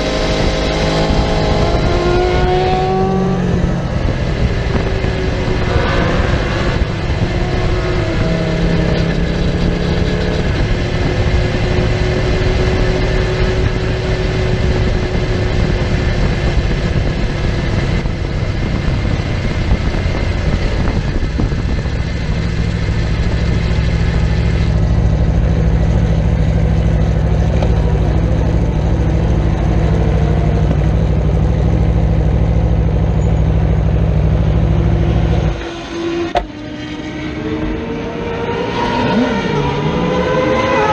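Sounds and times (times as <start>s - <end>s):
wind rush: 0.0s - 32.5s
motorcycle engine running: 0.0s - 37.7s.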